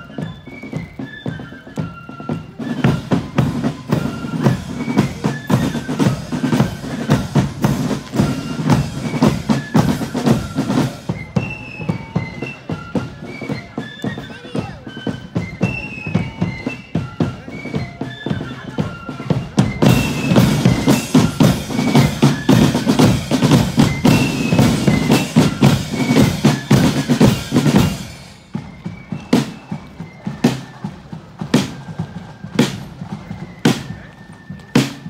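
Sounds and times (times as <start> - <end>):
flute melody: 0.0 - 35.0
side drums and bass drum: 2.5 - 12.4, 18.0 - 35.0.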